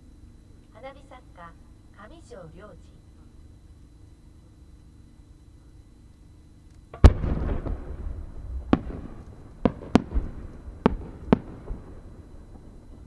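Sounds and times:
firework sharp pops: 6.6 - 13.0
firework mortar boom: 6.9 - 13.0.

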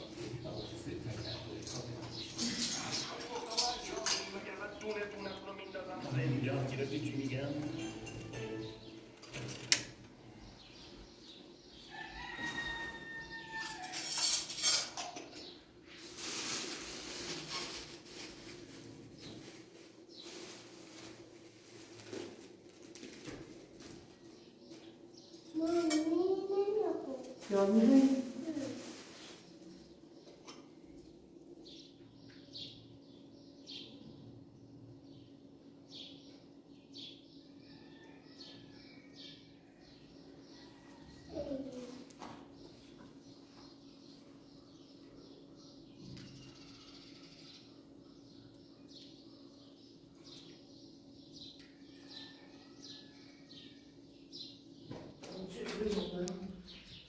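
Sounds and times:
rooster crowing: 11.8 - 14.1, 40.6 - 41.3, 51.9 - 53.4
faint bird chirping: 31.6 - 57.0.

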